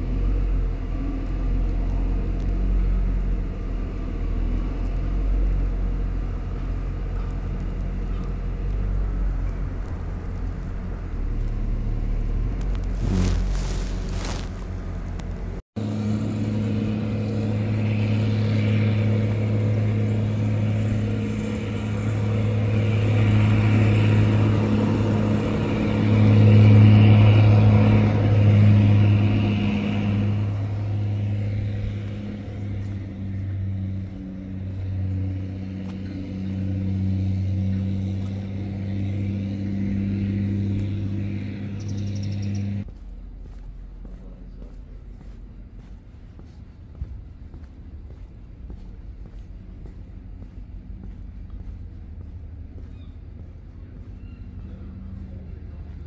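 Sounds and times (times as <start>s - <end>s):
forklift engine rumbling: 0.0s - 42.9s.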